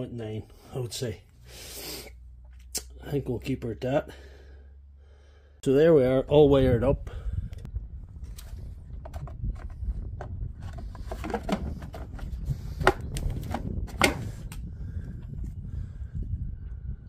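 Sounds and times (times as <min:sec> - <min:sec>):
low rumble: 0:06.1 - 0:17.0
plastic seat clicking and knocking: 0:09.0 - 0:14.2.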